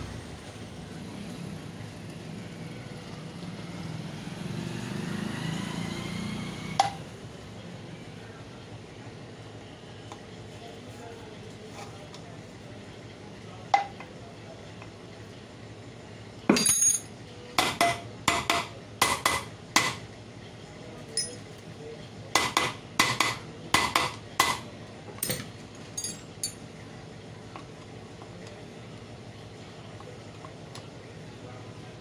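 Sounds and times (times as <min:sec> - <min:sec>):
hammer tapping on metal: 0:17.6 - 0:20.0, 0:22.4 - 0:24.6.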